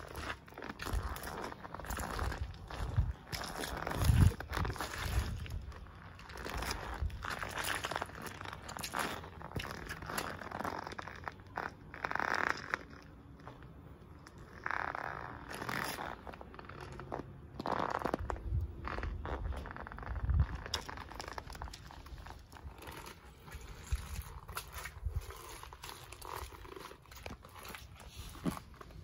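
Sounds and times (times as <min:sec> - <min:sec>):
shoes squishing on bananas: 0:00.0 - 0:12.5, 0:17.6 - 0:29.0.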